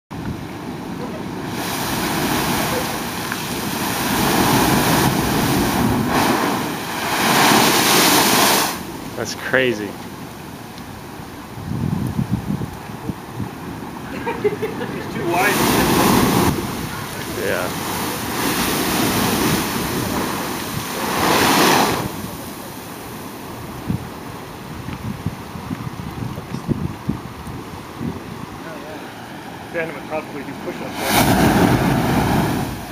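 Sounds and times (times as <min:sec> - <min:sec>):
surf washing over rocks: 0:00.2 - 0:32.9
blowhole rushing hiss: 0:00.8 - 0:09.6, 0:15.1 - 0:23.2, 0:28.6 - 0:32.9.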